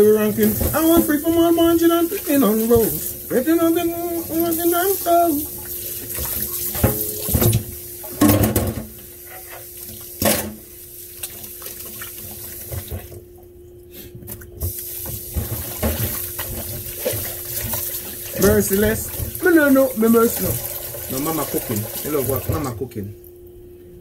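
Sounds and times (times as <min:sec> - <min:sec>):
steady low hum: 0:00.0 - 0:24.0
tap running into sink: 0:06.1 - 0:08.9, 0:14.6 - 0:22.7.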